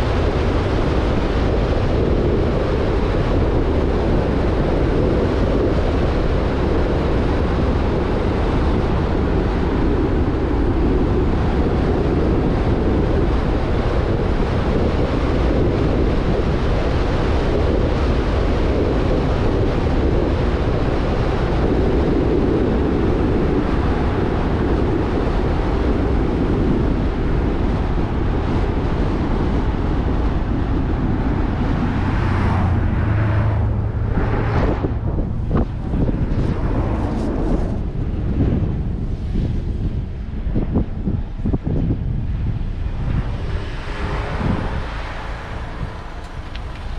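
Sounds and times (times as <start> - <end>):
wind buffeting microphone: 0.0 - 46.9
wind rush and road noise: 0.0 - 46.9
low drone: 27.1 - 46.9.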